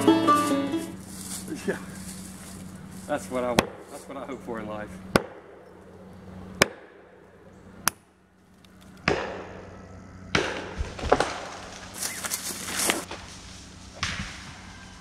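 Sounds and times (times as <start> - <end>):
wood crunching as trunk gives way: 0.3 - 4.0, 10.8 - 13.3
axe chopping tree trunk: 3.6 - 3.9, 5.1 - 5.6.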